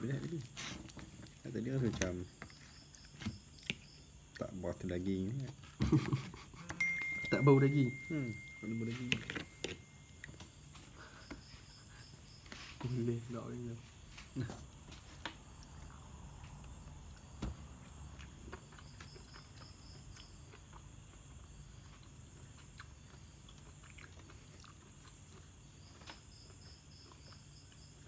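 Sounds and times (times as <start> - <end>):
night insects chirring: 0.0 - 28.0
knife and fork on plastic plate: 8.8 - 9.9.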